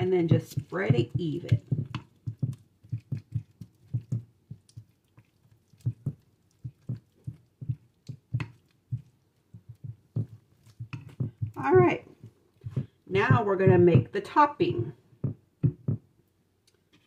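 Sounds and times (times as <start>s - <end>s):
spatula thudding and scraping dish: 7.7s - 11.6s.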